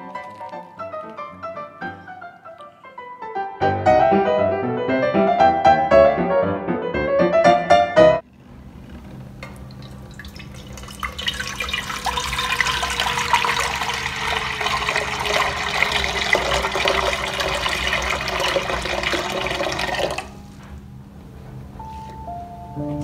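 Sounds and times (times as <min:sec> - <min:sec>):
water pouring into metal pot: 0:09.5 - 0:20.3.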